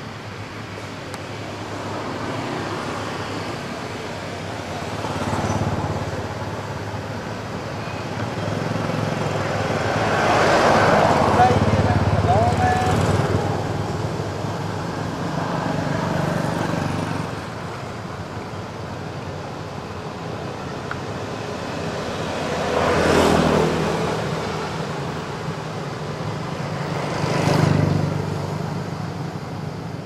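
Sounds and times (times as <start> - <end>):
engine noise: 0.0 - 30.0
vehicles passing by: 0.0 - 30.0.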